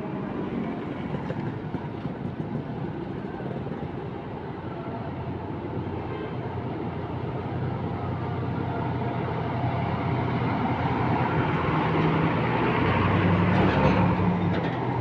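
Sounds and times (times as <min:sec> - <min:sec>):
bus diesel engine rumbling: 0:00.0 - 0:15.0.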